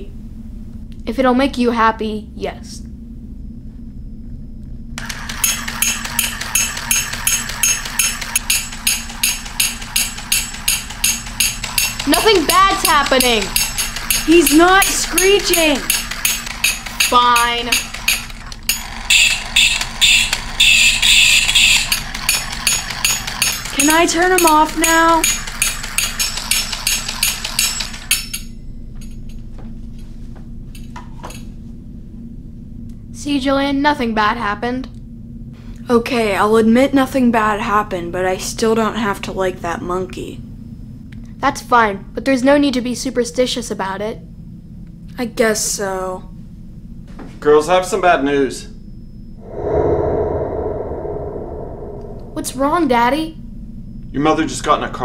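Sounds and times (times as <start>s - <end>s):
toy cymbals clashing: 5.0s - 20.8s
toy mechanism whirring: 5.0s - 28.3s.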